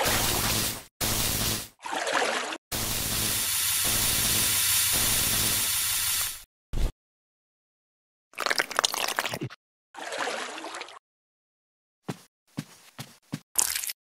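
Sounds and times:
electric shock crackling hiss: 2.8 - 6.4.

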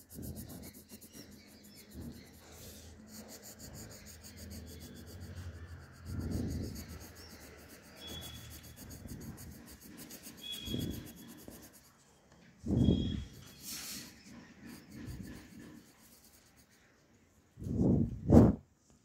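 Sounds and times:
pencil scratching on paper: 0.0 - 17.0.

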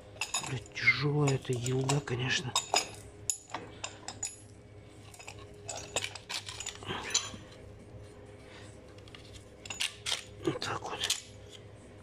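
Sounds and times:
steel parts clinking and knocking: 0.2 - 4.5, 5.1 - 7.4, 9.0 - 10.3.

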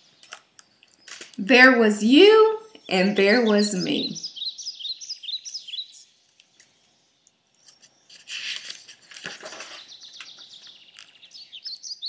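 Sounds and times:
book page turning: 7.6 - 11.3.

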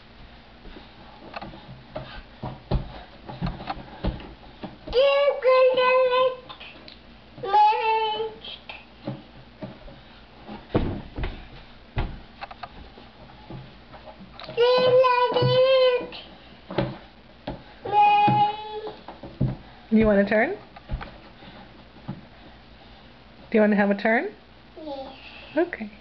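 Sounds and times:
light knocks and thumps: 0.6 - 5.2, 9.0 - 16.0, 16.6 - 22.6.

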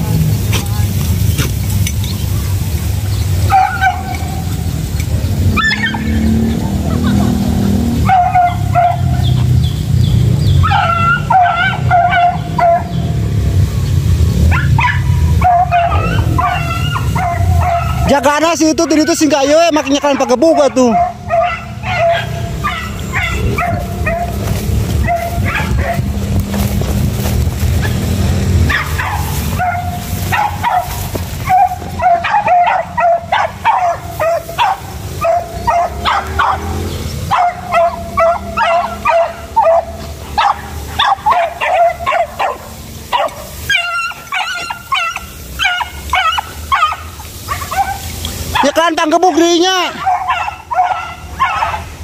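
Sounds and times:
dogs yelping and baying: 3.0 - 13.4, 14.3 - 52.0
low wind rumble on microphone: 21.0 - 39.8.

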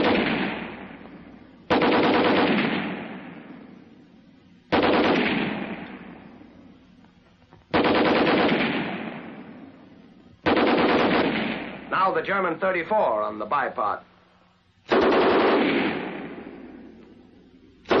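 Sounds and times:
machine gun bursts with echo: 0.0 - 3.7, 4.7 - 6.2, 7.7 - 9.8, 10.4 - 12.2, 14.9 - 16.9, 17.8 - 18.0.

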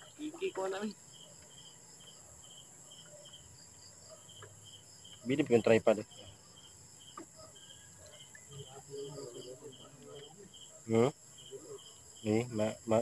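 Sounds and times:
crickets chirping: 0.0 - 13.0
faint low voices: 8.4 - 12.6.

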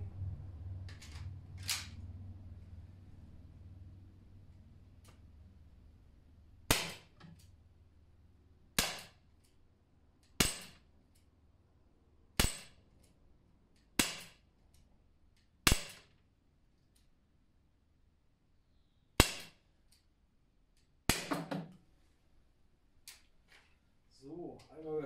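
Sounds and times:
air pistol shots cracking: 6.7 - 7.2, 8.8 - 9.2, 10.4 - 10.8, 12.4 - 12.8, 14.0 - 14.4, 15.7 - 16.1, 19.2 - 19.6.

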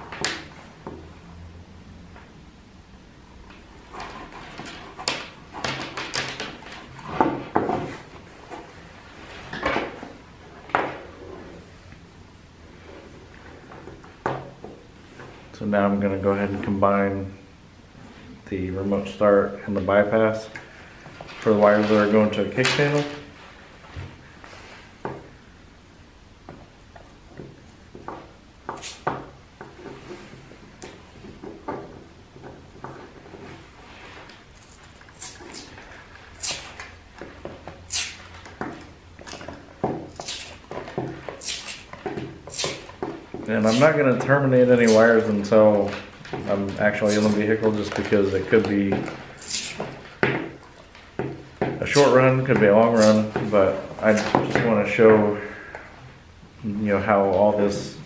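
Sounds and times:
sharp scratch: 28.8 - 29.0, 34.6 - 36.9, 37.9 - 38.3, 40.1 - 40.7, 41.4 - 41.9, 42.5 - 42.9, 43.6 - 44.0, 44.7 - 45.2, 47.0 - 47.4, 49.4 - 49.9, 52.9 - 53.4
hands rustling wires: 29.6 - 54.8.

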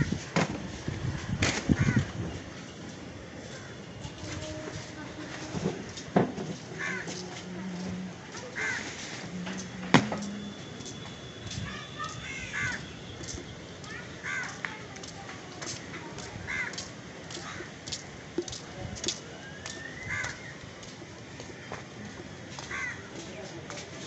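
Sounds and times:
crows cawing: 1.8 - 2.1, 6.8 - 7.2, 8.6 - 8.9, 12.0 - 13.0, 14.2 - 14.6, 16.5 - 16.8, 17.4 - 17.8, 20.0 - 20.5, 22.6 - 23.1.

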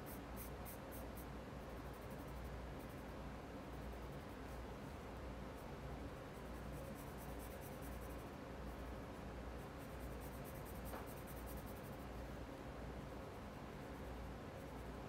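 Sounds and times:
pencil shading on paper: 5.6 - 8.3, 9.6 - 12.0.

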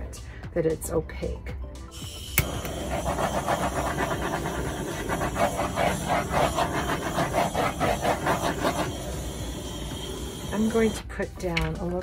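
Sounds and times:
squeeze bottle sputtering paint: 2.3 - 11.0.

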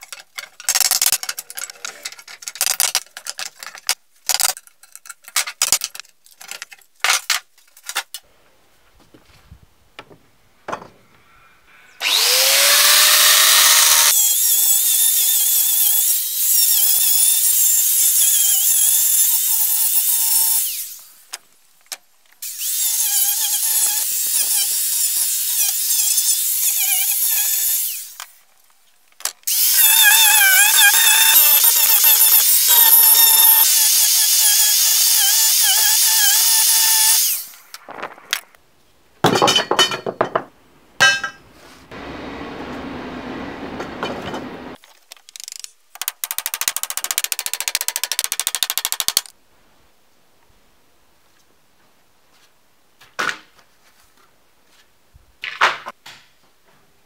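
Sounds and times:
angle grinder grinding nails: 12.0 - 21.1, 22.4 - 28.4, 29.4 - 38.5.

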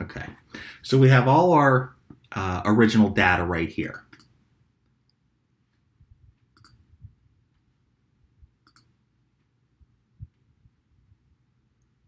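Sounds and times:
computer mouse clicks: 3.9 - 4.4, 6.4 - 6.9, 8.6 - 9.0
soft low thumps: 9.8 - 10.8.

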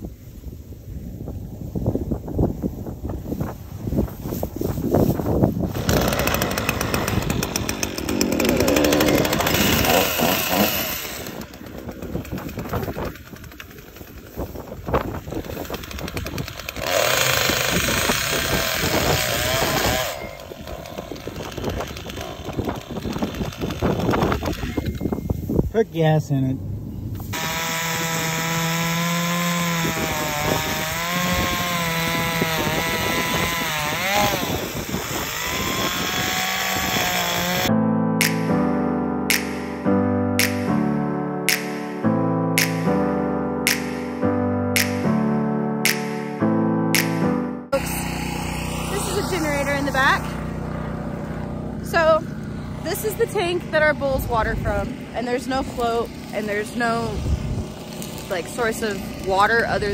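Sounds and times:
chainsaw running: 5.6 - 25.2, 27.3 - 38.4, 45.8 - 46.2, 47.0 - 53.3, 54.7 - 59.9.

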